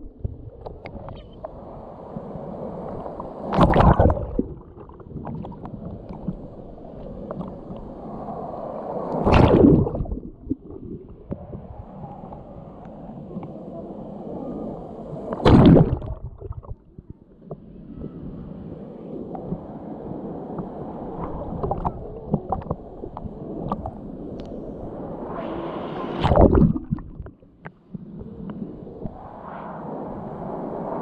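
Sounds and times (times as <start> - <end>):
breaking waves rushing over: 1.4 - 16.8, 17.6 - 27.5, 28.2 - 31.0
sea water sloshing: 2.9 - 7.9, 9.1 - 11.5, 15.3 - 16.9, 26.2 - 27.6.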